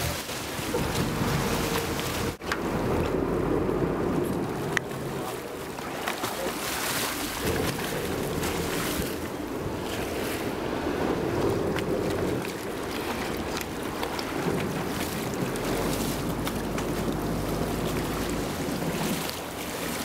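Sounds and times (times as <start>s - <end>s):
water splashing against boat: 0.0s - 20.0s
wind buffeting microphone: 0.0s - 20.0s.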